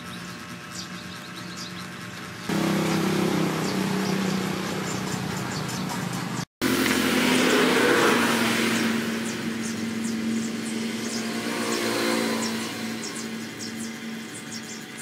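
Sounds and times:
engine humming: 0.0 - 15.0.

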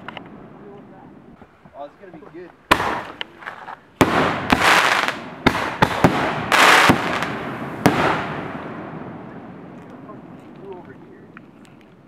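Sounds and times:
firework bang: 2.7 - 3.2, 4.0 - 9.7
firework cracks and crackling hiss: 2.7 - 11.3.

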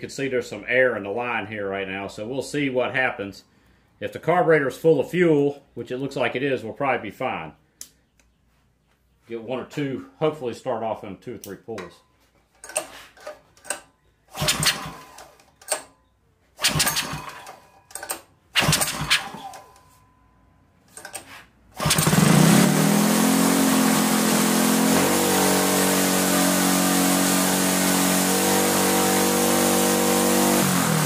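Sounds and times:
starter rope yanks: 12.5 - 15.9, 16.6 - 19.9
small engine fast idle: 14.3 - 15.4, 21.8 - 22.8.

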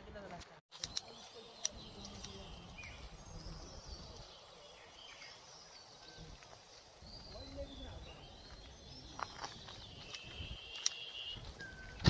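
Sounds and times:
sharp click: 0.8 - 2.4.

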